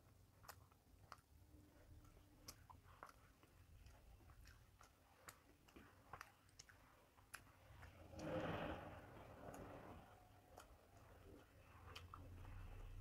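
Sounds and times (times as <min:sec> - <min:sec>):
faint chewing: 0:00.0 - 0:13.0.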